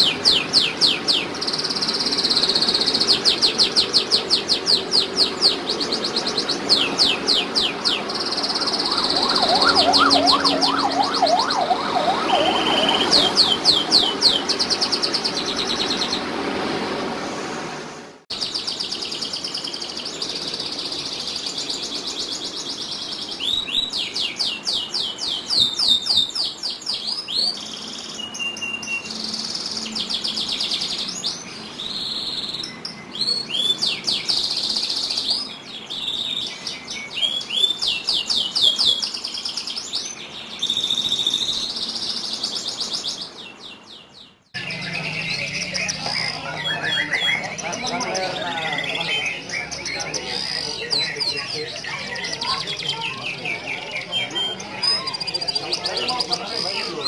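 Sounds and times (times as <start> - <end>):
canary singing trills: 0.0 - 16.3, 18.3 - 57.0.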